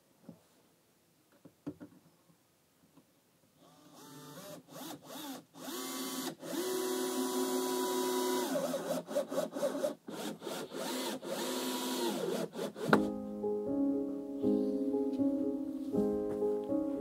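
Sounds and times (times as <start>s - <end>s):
cordless drill driving screws: 3.6s - 13.0s.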